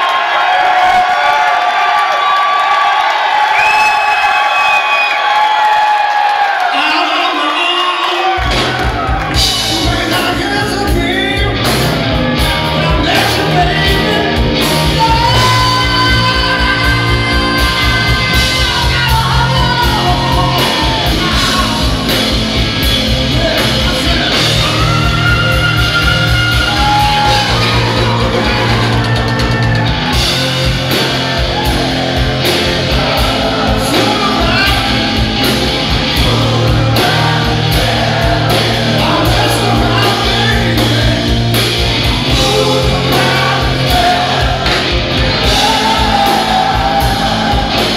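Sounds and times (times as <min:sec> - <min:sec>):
live rock band playing: 0:06.8 - 0:47.9
man singing: 0:09.4 - 0:29.9, 0:32.5 - 0:47.9.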